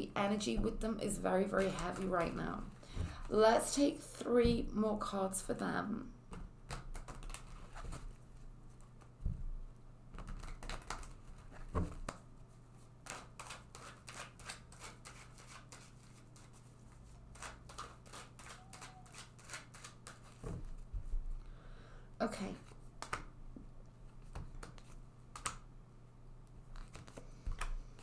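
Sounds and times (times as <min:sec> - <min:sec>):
faint steady hum: 0:00.0 - 0:28.0
cards being shuffled: 0:06.7 - 0:09.2, 0:10.1 - 0:12.2, 0:13.0 - 0:20.8, 0:24.1 - 0:25.6, 0:26.7 - 0:28.0.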